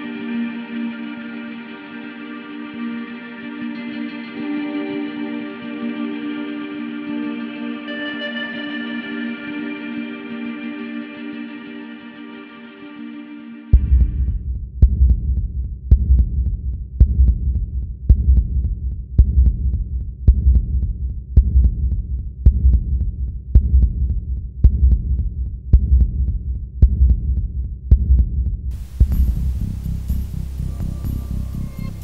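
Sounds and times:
low heartbeat-like thump in music: 13.7 - 32.0.

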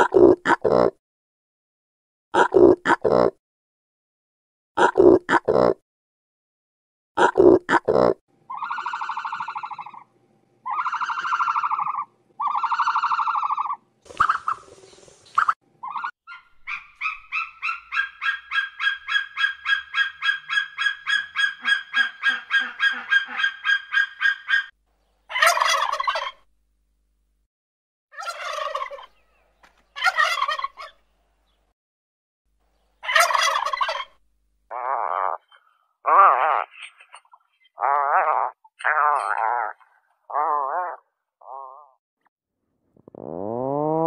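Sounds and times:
drawn-out pitched animal calls: 8.5 - 14.8, 15.4 - 24.7, 25.3 - 26.4, 28.2 - 29.2, 33.0 - 34.1
turkeys gobbling: 8.5 - 14.8, 15.4 - 24.7, 25.3 - 26.4, 28.2 - 29.4, 30.0 - 31.0, 33.0 - 34.2
rapid high bird calls: 10.7 - 24.7.

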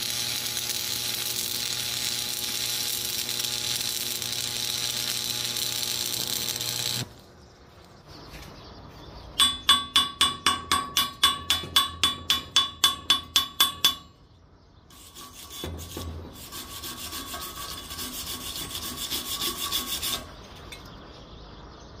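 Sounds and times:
welding arc sizzling: 0.0 - 7.3, 14.9 - 20.4
hand tool rubbing on steel: 14.9 - 20.4.

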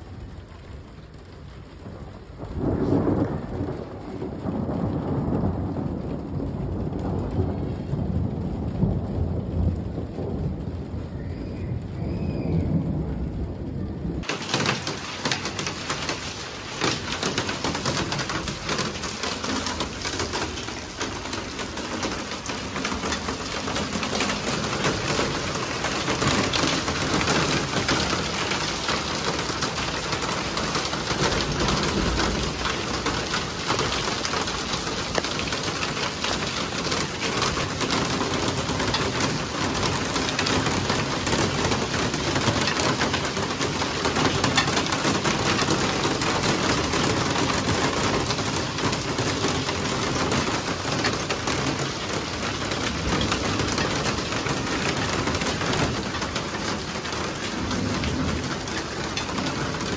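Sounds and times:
rain falling: 0.0 - 59.9
rain pattering on concrete: 0.0 - 59.9
thunder rumbling: 0.0 - 59.9.

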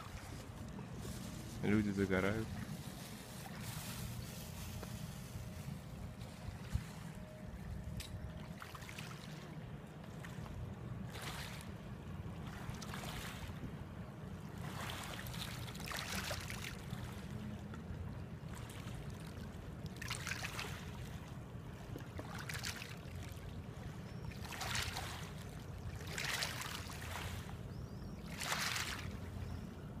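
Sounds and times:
steady low rumble: 0.0 - 12.8.

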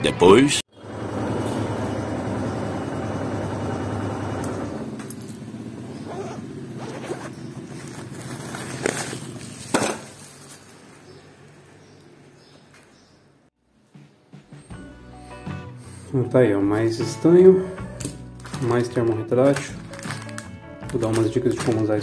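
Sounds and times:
motorcycle engine running: 0.8 - 9.7
plastic bag rustling: 6.9 - 11.7, 18.3 - 22.0.

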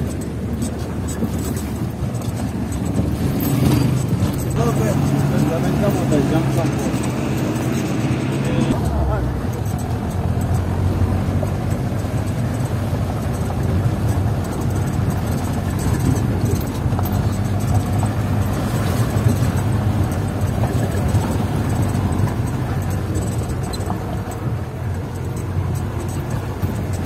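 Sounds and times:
car engine rumble: 0.0 - 27.0
rough-road rattling: 0.0 - 27.0.

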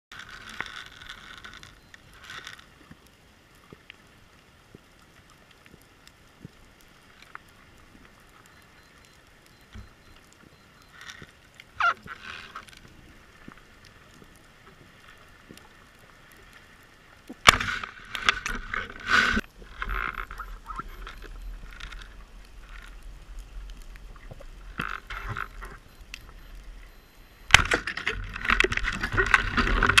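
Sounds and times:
faint underwater crackle: 0.1 - 30.0
underwater rushing and knocking: 17.3 - 30.0.

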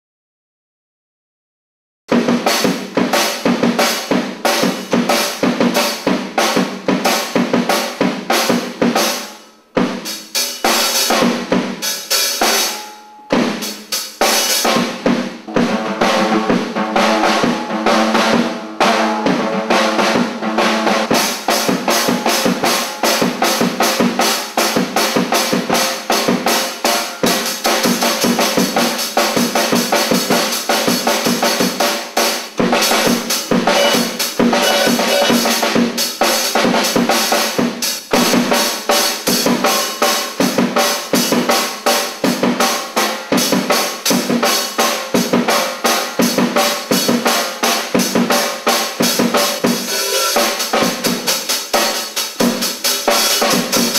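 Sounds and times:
cymbals: 2.1 - 53.9
snare drum: 2.1 - 53.9
bass drum: 14.7 - 26.4.

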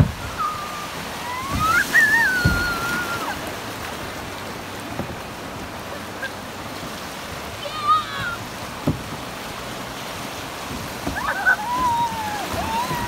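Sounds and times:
wind buffeting microphone: 0.0 - 7.4
river rapids rushing: 0.0 - 13.0.

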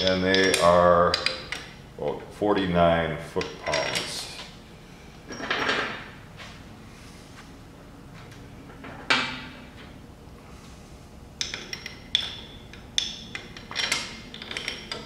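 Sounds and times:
metal bolts clinking: 11.4 - 15.0.

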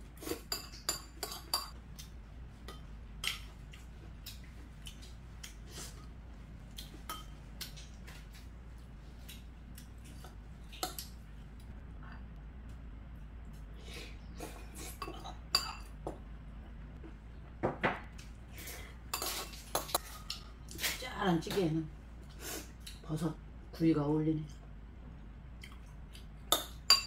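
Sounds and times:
spoon and chopsticks clinking on bowls: 26.5 - 27.0.

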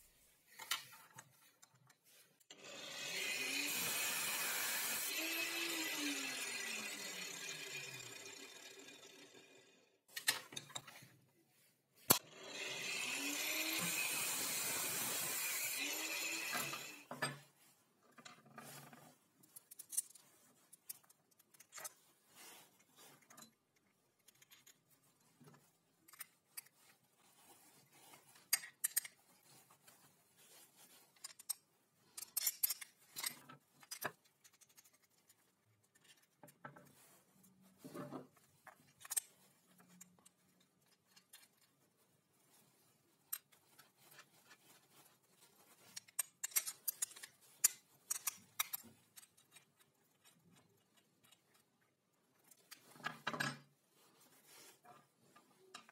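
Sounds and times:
angle grinder cutting steel: 2.5 - 9.8, 12.1 - 17.1.

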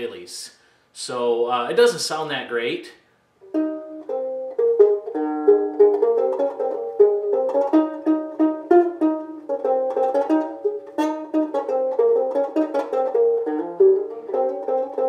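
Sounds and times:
resonator ukulele plucked tune: 3.4 - 15.0.

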